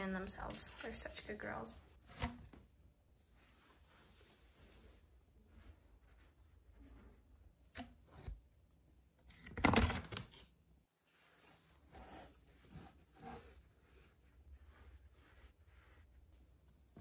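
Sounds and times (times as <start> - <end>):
soft rustling: 3.1 - 7.5
brushing scrape: 11.0 - 16.4.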